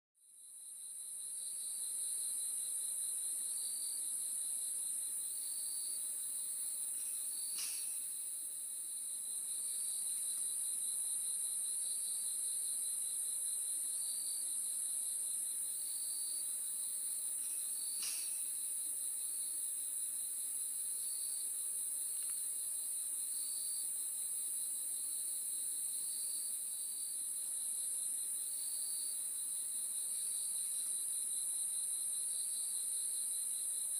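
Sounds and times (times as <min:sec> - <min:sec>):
lower cricket chirp: 0:00.2 - 0:33.9
crickets trilling: 0:05.2 - 0:08.4, 0:15.9 - 0:18.8, 0:27.2 - 0:33.9.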